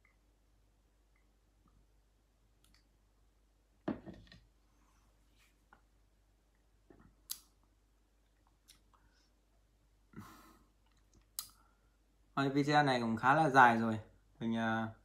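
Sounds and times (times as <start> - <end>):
plastic jug set down on table: 3.9 - 4.4.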